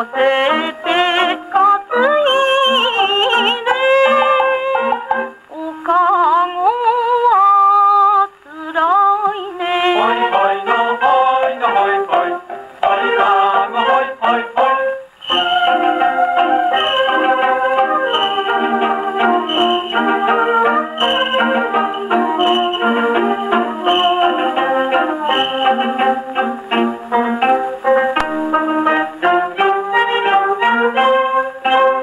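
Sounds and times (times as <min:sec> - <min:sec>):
plucked shamisen notes: 0:00.0 - 0:05.4, 0:10.0 - 0:32.0
woman singing: 0:00.0 - 0:12.2.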